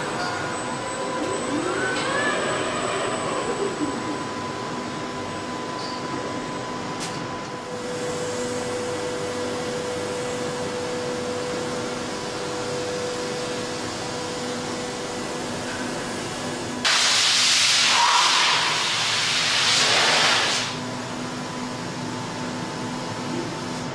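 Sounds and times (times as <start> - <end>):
factory machinery humming: 0.0 - 23.9
loud hiss: 16.8 - 20.8.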